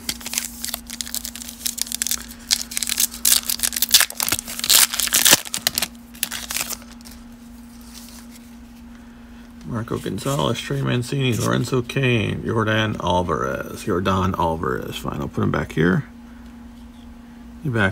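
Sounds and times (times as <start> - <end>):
foil wrapper tearing and crinkling: 0.0 - 7.2.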